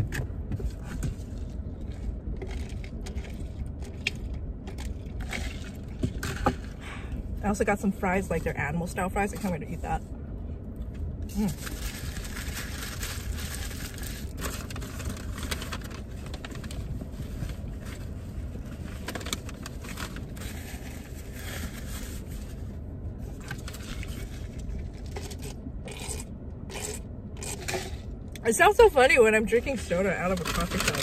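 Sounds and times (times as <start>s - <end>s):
steady low hum: 0.0s - 31.0s
foil wrapper crinkling: 11.3s - 18.0s
chewing: 25.1s - 27.8s
soda slurping through lid: 25.3s - 28.0s.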